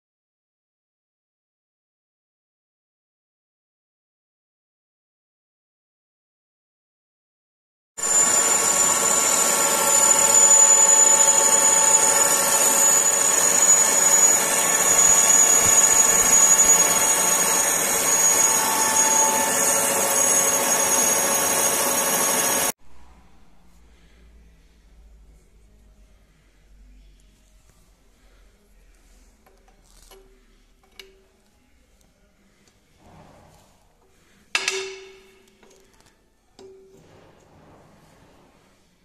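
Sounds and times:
metal lathe cutting steel: 0:08.0 - 0:22.7.

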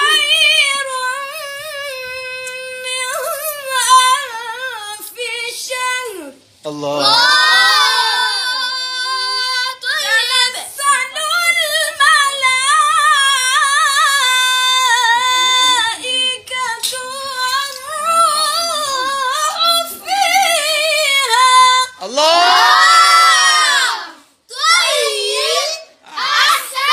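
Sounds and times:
boy chanting quran recitation: 0:08.0 - 0:22.7.

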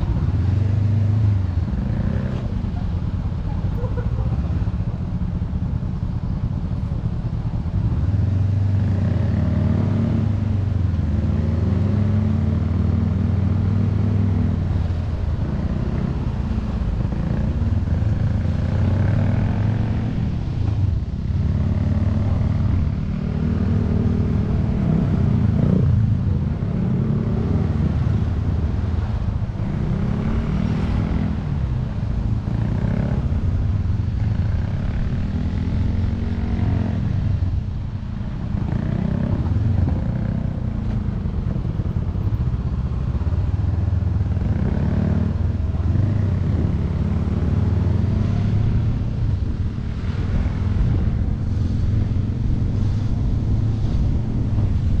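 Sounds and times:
motorcycle engine revving: 0:07.8 - 0:31.7, 0:38.2 - 0:55.0.

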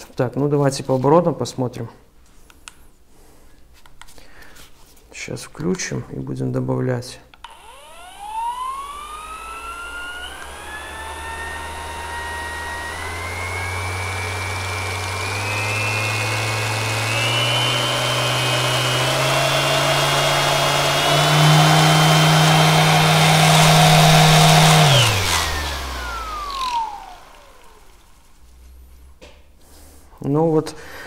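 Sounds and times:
orbital sander motor whine: 0:07.4 - 0:28.3.

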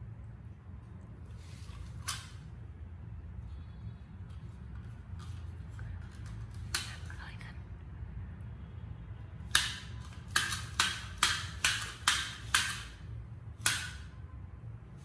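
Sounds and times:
plastic toy gun clicking: 0:09.5 - 0:13.0.

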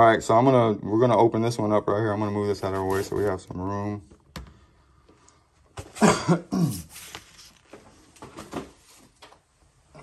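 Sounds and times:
man clearing throat and coughing: 0:05.8 - 0:07.0.

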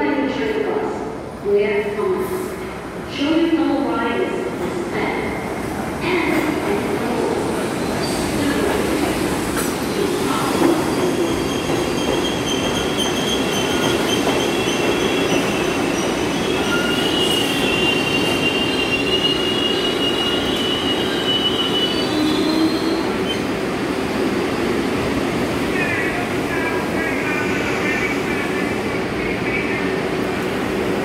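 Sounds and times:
high-pitched train squeal: 0:11.0 - 0:23.4.

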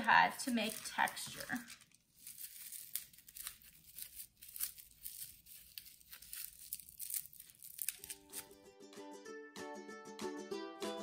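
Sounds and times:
plastic crinkling: 0:00.0 - 0:08.6
soft dabs of bubble wrap on paper: 0:00.0 - 0:08.6.

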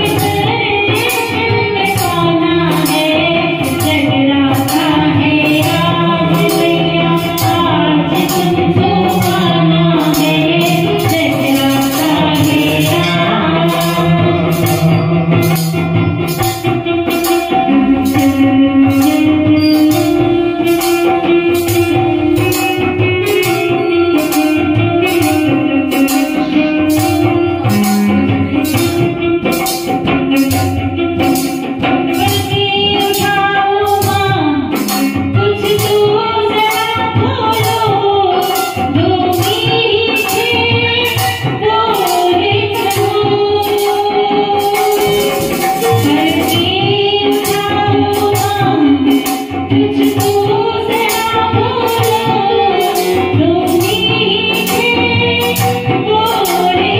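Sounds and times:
accompanying instruments: 0:00.0 - 0:56.9
jingling percussion beat: 0:00.0 - 0:56.9
woman singing through microphone: 0:00.0 - 0:56.9.

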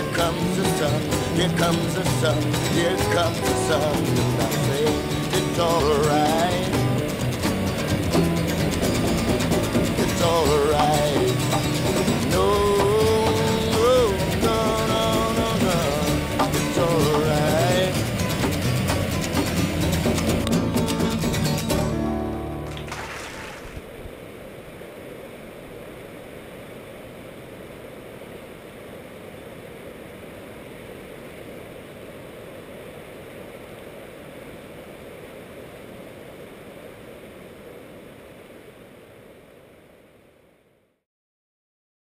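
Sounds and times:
music: 0:00.0 - 0:23.1
river rapids rushing: 0:00.0 - 0:31.6.

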